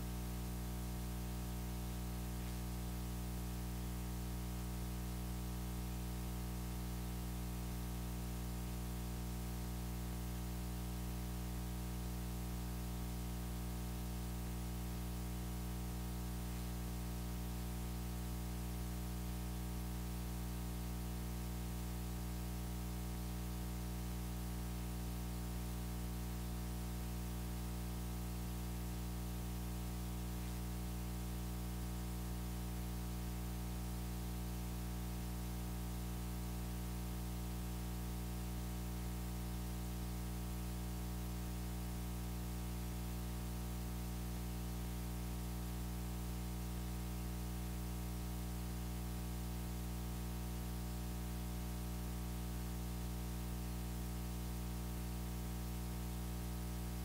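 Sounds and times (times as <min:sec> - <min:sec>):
electrical hum: 0:00.0 - 0:31.2.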